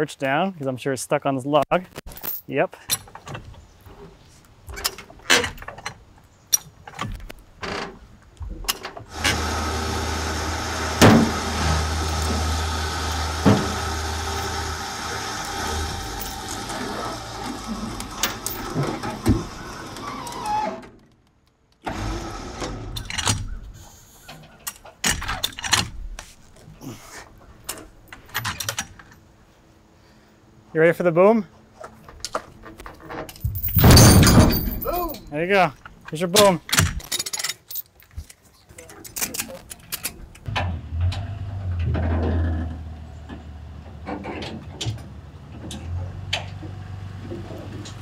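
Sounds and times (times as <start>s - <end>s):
electric winch motor: 9.1s - 20.8s, 21.8s - 23.2s
chain clanking: 15.4s - 19.2s, 33.0s - 35.4s, 37.0s - 40.2s
sharp metal knocks: 33.4s - 35.2s.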